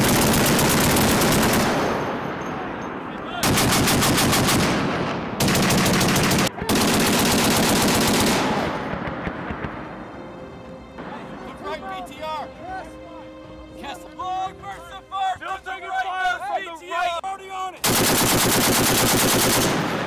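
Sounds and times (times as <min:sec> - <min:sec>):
rolling gunfire echo: 0:00.0 - 0:10.1, 0:17.8 - 0:20.0
heavy machine gun bursts: 0:17.8 - 0:20.0.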